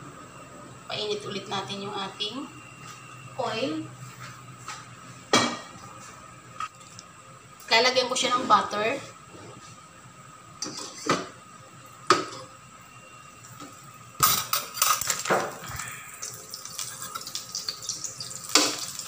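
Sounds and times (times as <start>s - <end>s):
butter sizzling in hot oil: 15.0s - 19.0s.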